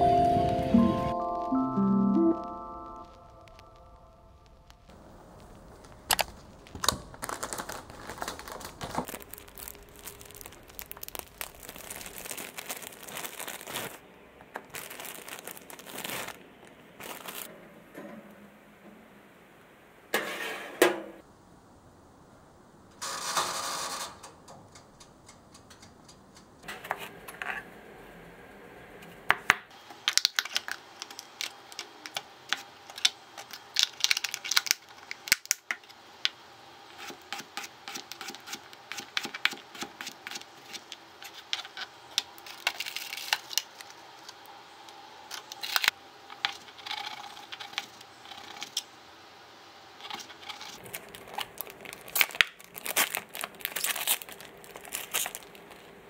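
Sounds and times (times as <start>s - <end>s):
plastic packaging crinkling: 3.0s - 17.5s, 30.0s - 36.0s, 36.9s - 44.5s, 45.3s - 48.8s, 50.0s - 56.0s.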